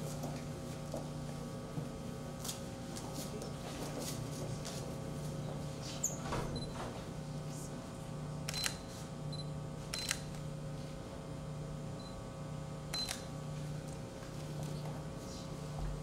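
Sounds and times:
steady hum: 0:00.0 - 0:16.0
camera shutter clicks: 0:08.5 - 0:08.8, 0:09.9 - 0:10.4, 0:12.9 - 0:13.3.

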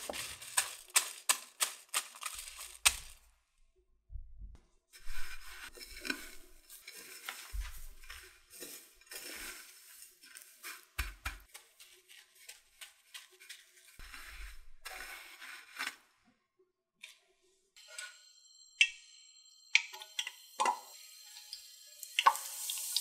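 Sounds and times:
breadcrumbs rustling and crunching: 0:00.0 - 0:03.4, 0:05.0 - 0:16.1
soft low thumps: 0:04.0 - 0:04.7.

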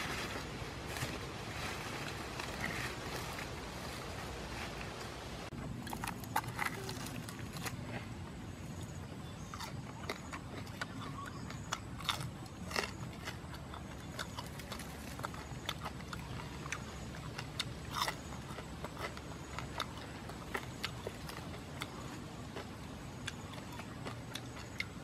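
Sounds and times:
man chewing: 0:05.6 - 0:25.0.

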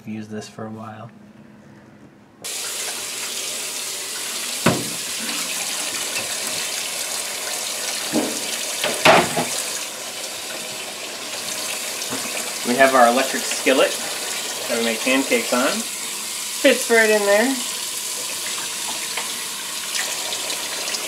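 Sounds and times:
faucet running into metal sink: 0:02.5 - 0:21.0
baking sheet knocking: 0:04.6 - 0:05.1.

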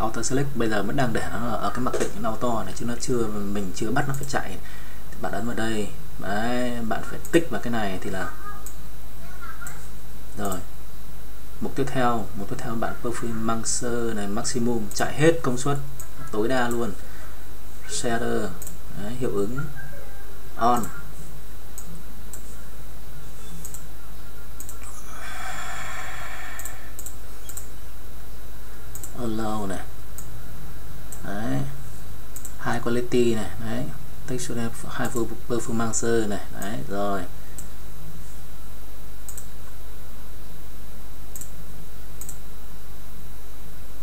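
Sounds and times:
steady low hum: 0:00.0 - 0:44.0
computer mouse clicking: 0:20.8 - 0:21.0, 0:23.5 - 0:23.8, 0:24.6 - 0:25.0, 0:26.5 - 0:27.7, 0:28.9 - 0:29.2, 0:32.4 - 0:32.6, 0:39.3 - 0:39.5, 0:41.3 - 0:41.5, 0:42.2 - 0:42.4
breathy exhale near microphone: 0:24.8 - 0:27.0.

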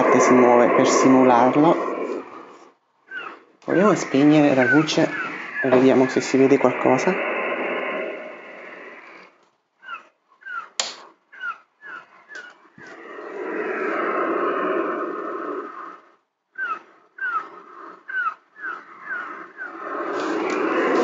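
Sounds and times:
wave washing in: 0:03.7 - 0:09.3
sharp click: 0:10.8 - 0:11.1.

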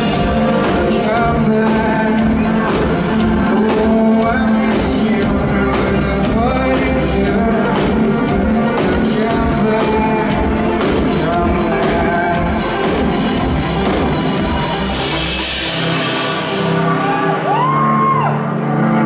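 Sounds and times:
man singing: 0:00.0 - 0:13.7
drum beat: 0:00.0 - 0:15.4
live band playing pop: 0:00.0 - 0:19.0.

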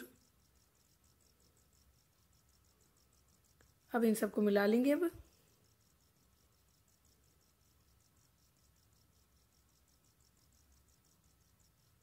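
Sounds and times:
faint high-pitched chirping: 0:00.0 - 0:12.0.

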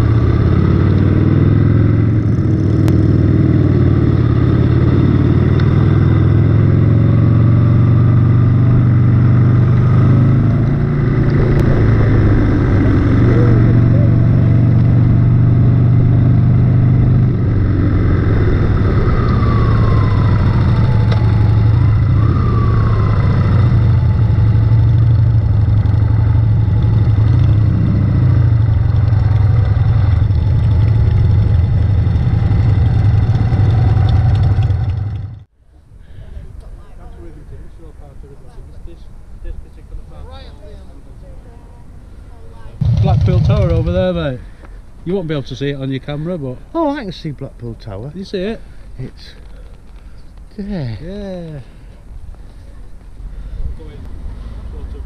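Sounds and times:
motorcycle engine running: 0:00.0 - 0:35.5, 0:42.8 - 0:44.4.

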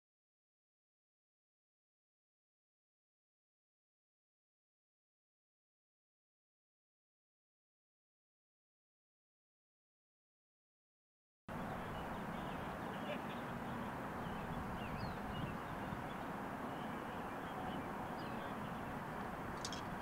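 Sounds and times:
small birds chirping: 0:11.5 - 0:20.0.

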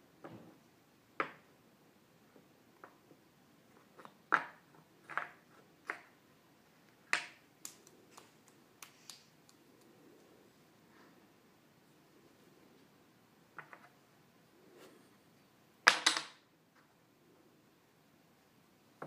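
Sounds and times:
wooden puzzle pieces clacking: 0:03.8 - 0:06.2, 0:15.8 - 0:16.4.

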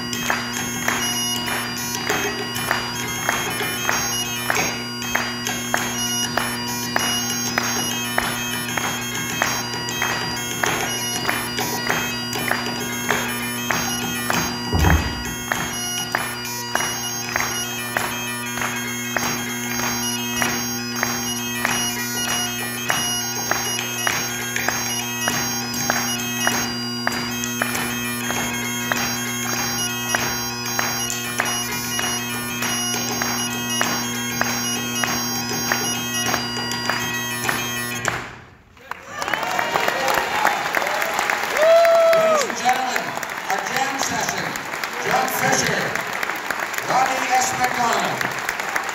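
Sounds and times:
bagpipes playing a tune: 0:00.0 - 0:38.7, 0:39.6 - 0:48.9
low thump: 0:14.7 - 0:15.6.

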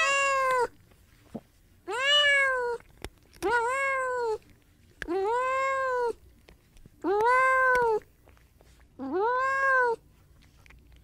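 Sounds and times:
cat meowing: 0:00.0 - 0:00.7, 0:01.9 - 0:02.8, 0:03.4 - 0:04.4, 0:05.0 - 0:06.2, 0:07.0 - 0:08.0, 0:09.0 - 0:10.0.

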